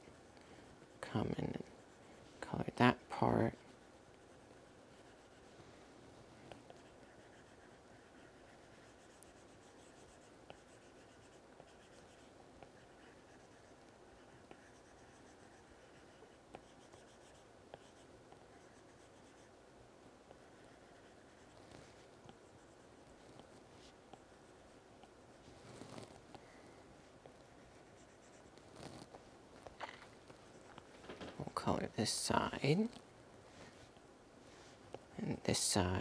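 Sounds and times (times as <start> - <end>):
stylus strokes on glass screen: 0.0 - 19.6, 20.2 - 26.3, 27.0 - 29.2.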